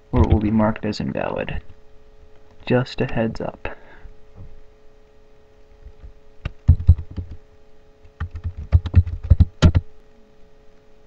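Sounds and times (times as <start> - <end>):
faint steady hum: 0.0 - 11.0
typing on computer keyboard: 6.6 - 7.4, 8.1 - 9.8.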